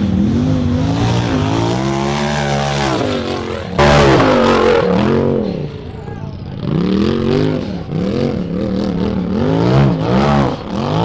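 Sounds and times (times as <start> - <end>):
race car engine revving: 0.0 - 11.0.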